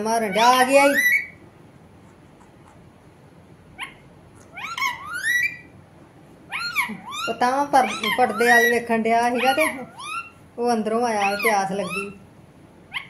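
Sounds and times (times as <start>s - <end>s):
parakeet squawking: 0.0s - 1.4s, 3.7s - 5.8s, 6.4s - 13.0s.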